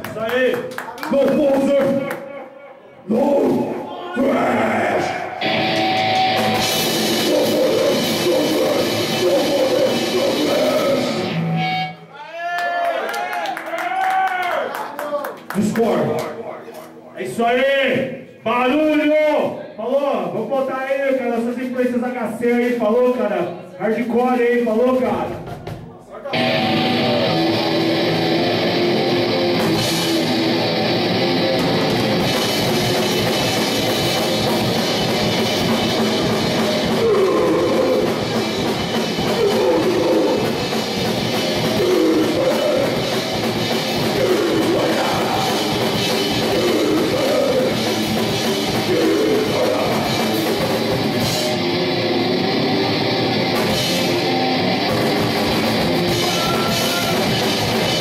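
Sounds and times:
distorted electric guitar: 4.6 - 12.2, 26.3 - 58.0
drum kit pounding: 5.0 - 11.9, 24.9 - 58.0.

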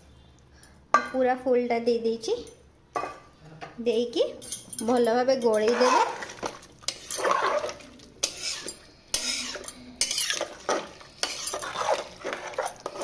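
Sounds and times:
spoon scraping metal pot: 5.4 - 13.0.

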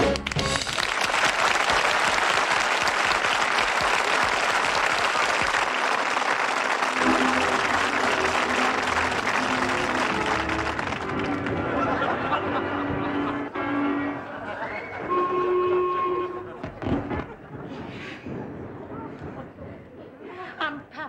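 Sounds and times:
band music: 0.0 - 0.8, 6.9 - 17.2
audience applauding: 0.0 - 13.6.

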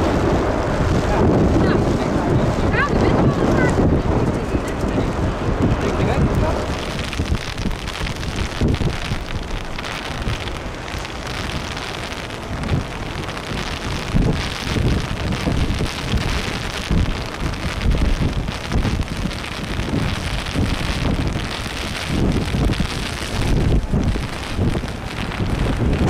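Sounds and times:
rain: 0.0 - 26.0
rushing wind: 0.0 - 26.0
wind buffeting microphone: 0.0 - 26.0.

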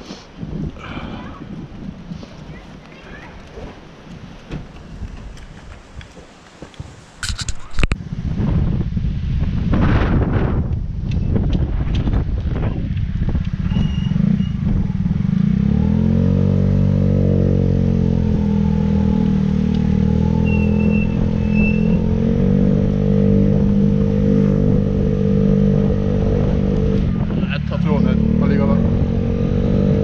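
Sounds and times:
motorcycle engine running: 11.5 - 30.0.

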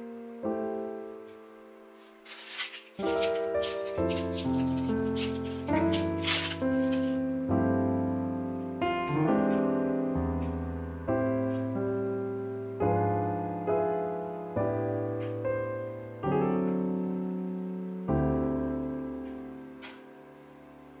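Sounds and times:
soft piano chords: 0.0 - 21.0
faint handling ticks: 2.0 - 7.2
plastic wrapping rustling: 2.0 - 7.3.

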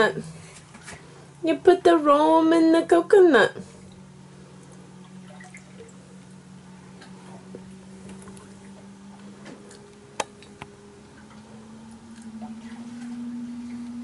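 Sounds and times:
low hum: 0.0 - 14.0
liquid trickling into coconut: 3.9 - 6.1.

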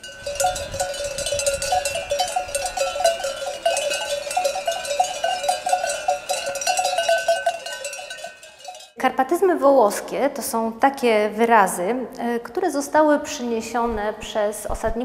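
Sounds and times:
sheep bells clanking and jingling: 0.0 - 9.0.

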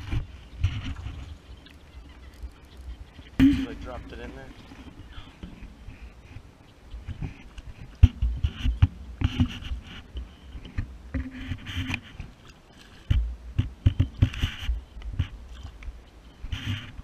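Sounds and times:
handling scraping and rubbing: 0.0 - 6.4, 7.1 - 13.2, 16.5 - 17.0.

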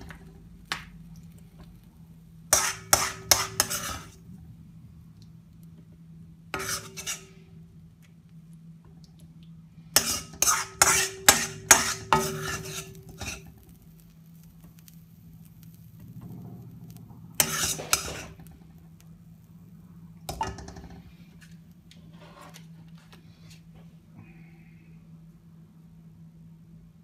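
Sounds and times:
steady low hum: 0.0 - 27.0
metal spoon scraping steel pan: 2.5 - 4.2, 6.6 - 7.5, 10.0 - 13.7, 16.3 - 18.5.

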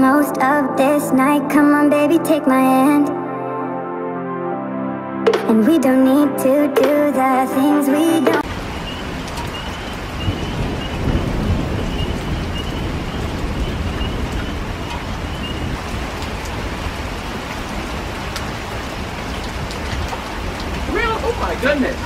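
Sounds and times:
steady rain falling: 8.4 - 22.0
low rumble of thunder: 8.5 - 22.0.

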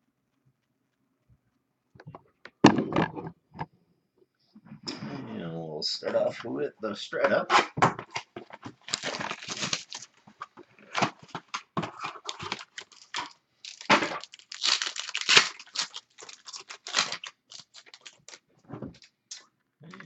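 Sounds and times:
plastic shrink wrap tearing: 8.7 - 10.2, 10.8 - 19.2.

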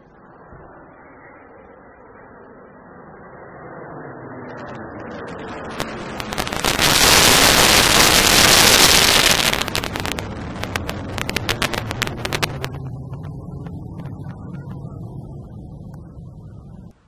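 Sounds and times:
fighter jets roaring overhead: 0.0 - 17.0.

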